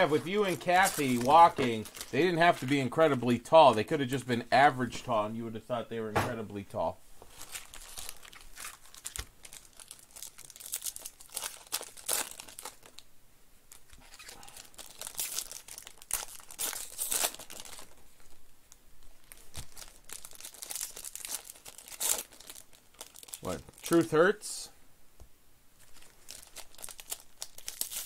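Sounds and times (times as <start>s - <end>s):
foil wrapper crinkling and tearing: 0.0s - 3.2s, 7.3s - 13.0s, 13.7s - 18.4s, 19.0s - 24.2s, 25.8s - 28.0s.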